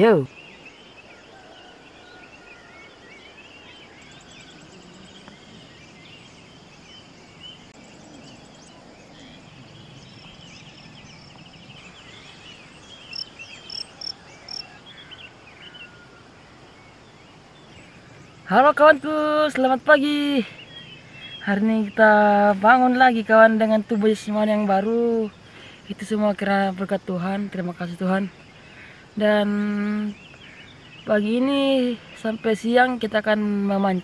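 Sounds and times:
birds chirping: 0.0 - 34.0
faint insects ticking: 0.0 - 34.0
sharp high bird calls: 11.8 - 16.0.

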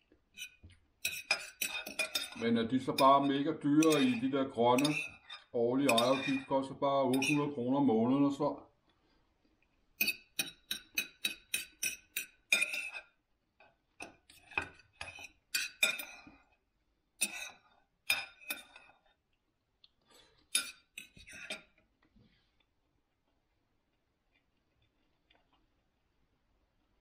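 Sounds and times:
knife and fork clinking on plate: 0.4 - 7.6, 10.0 - 13.2, 14.0 - 16.4, 17.2 - 19.0, 20.5 - 21.8.

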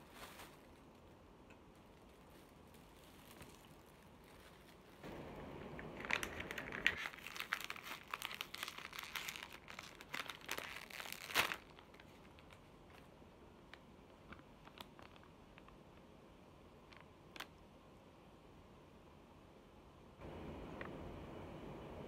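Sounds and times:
paper bag crinkling and rustling: 0.0 - 13.2, 14.1 - 15.8.

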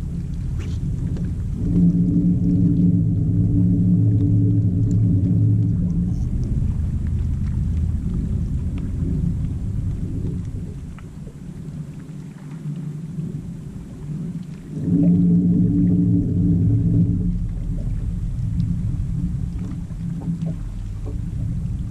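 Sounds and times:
wind rumble on microphone: 0.0 - 21.9.

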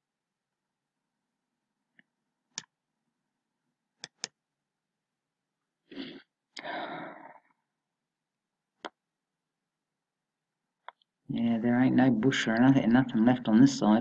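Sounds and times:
computer mouse clicks: 1.9 - 2.8, 4.0 - 4.4
person breathing: 5.9 - 7.6.

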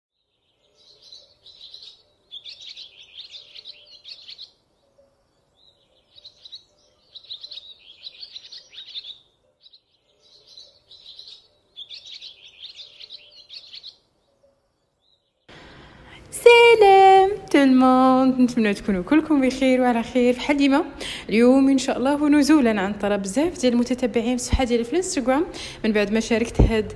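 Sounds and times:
small birds chirping: 0.1 - 15.6.

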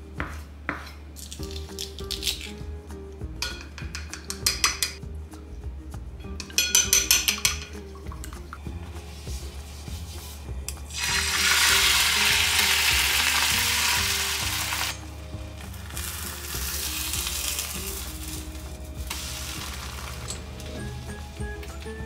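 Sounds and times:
soft background music: 0.0 - 22.0
egg sizzling in a frying pan: 10.9 - 15.0, 15.6 - 20.5.

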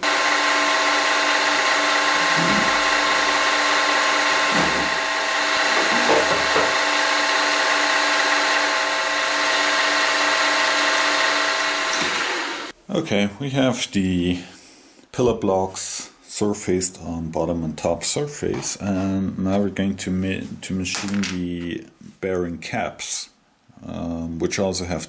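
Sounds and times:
milling machine whine: 0.0 - 12.7.

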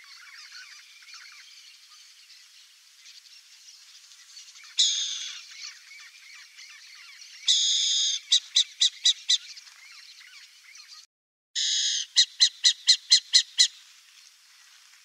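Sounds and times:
owl calling: 4.8 - 5.8, 6.7 - 9.5, 11.6 - 13.8.

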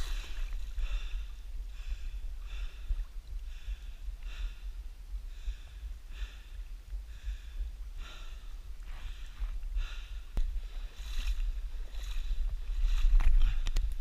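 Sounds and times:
low rumble: 0.0 - 14.0
man breathing hard through nose: 0.0 - 14.0.

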